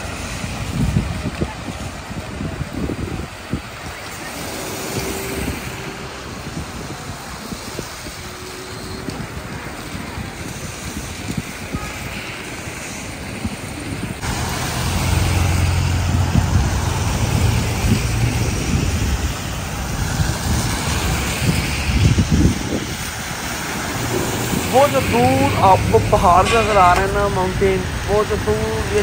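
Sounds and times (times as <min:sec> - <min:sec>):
traffic on wet road: 0:00.0 - 0:29.0
low engine hum: 0:14.2 - 0:29.0.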